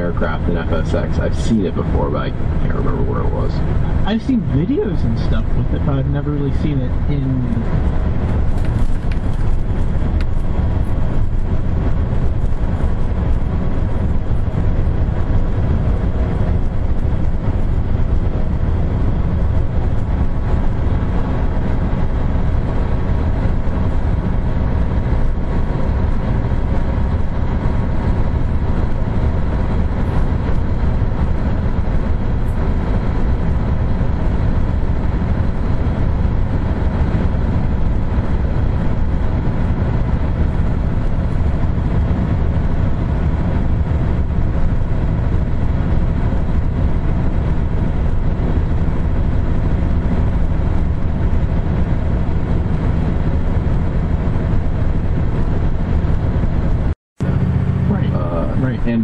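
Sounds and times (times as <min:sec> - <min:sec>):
diesel truck engine droning: 0:00.0 - 0:59.0
tyre and road noise: 0:00.0 - 0:59.0.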